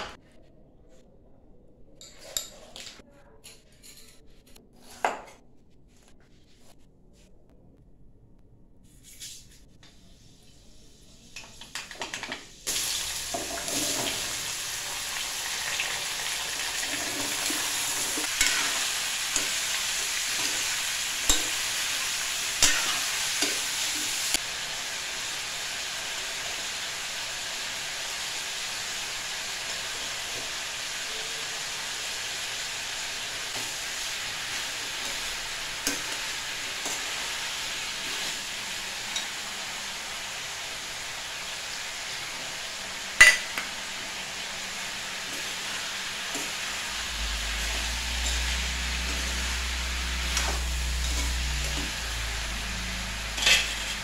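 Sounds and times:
wok hissing: 0:12.5 - 0:54.0.

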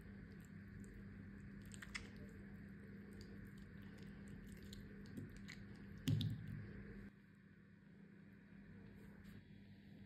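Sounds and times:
spoon squishing mango flesh: 0:00.0 - 0:06.7
low steady hum: 0:00.0 - 0:10.0.

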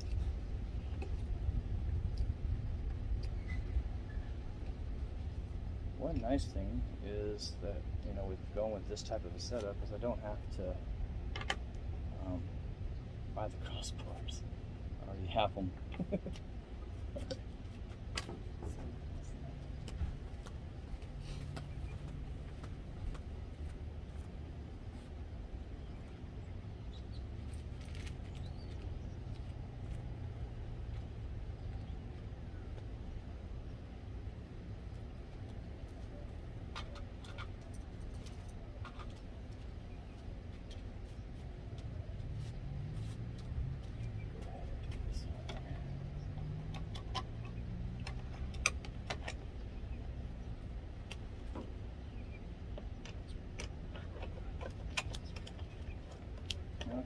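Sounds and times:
low outdoor rumble: 0:00.0 - 0:57.0.

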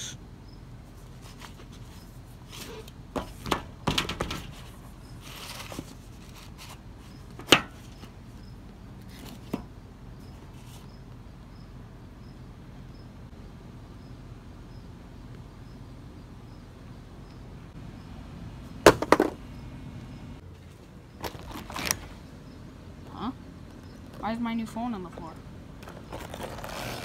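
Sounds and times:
cardboard rustle: 0:04.5 - 0:06.9, 0:25.8 - 0:27.0
box falling to floor: 0:18.9 - 0:19.4
box knocking on glass table: 0:18.9 - 0:19.4.

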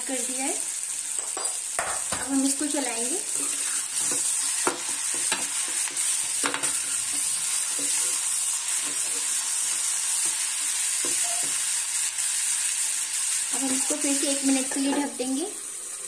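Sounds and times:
vegetables sizzling in oil: 0:00.0 - 0:16.0
spoon scraping and clinking pan: 0:03.3 - 0:09.4, 0:11.0 - 0:11.6.

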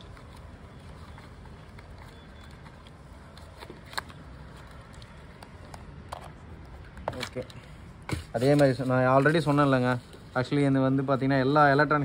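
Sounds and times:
paper rustling and tapping: 0:06.9 - 0:10.2.

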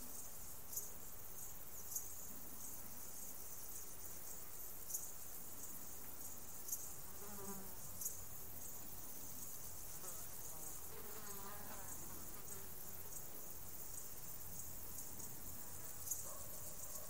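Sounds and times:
field insects chirring: 0:00.0 - 0:17.0
flying insect buzzing: 0:05.7 - 0:16.7.

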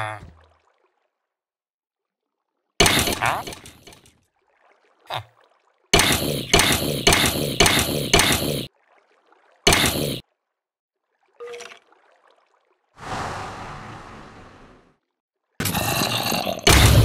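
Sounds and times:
clattering mechanical hits: 0:16.7 - 0:17.0
sudden loud hit: 0:16.7 - 0:17.0.

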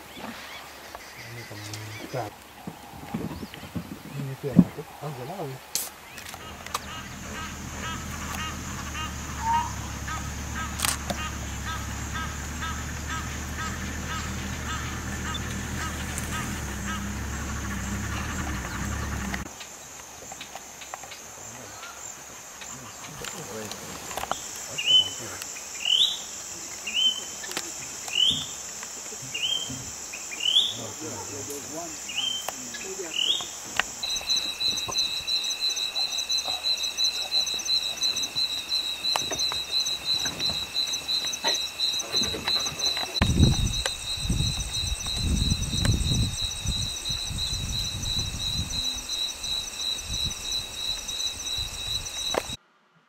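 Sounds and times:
high insect hum: 0:00.0 - 0:52.6
short rising insect call: 0:04.9 - 0:19.6, 0:24.1 - 0:52.6
pulsing cricket trill: 0:06.2 - 0:19.5, 0:24.2 - 0:52.6.

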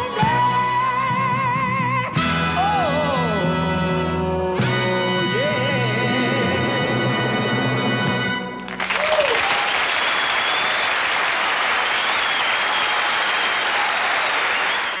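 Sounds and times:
audience applauding: 0:08.6 - 0:15.0.

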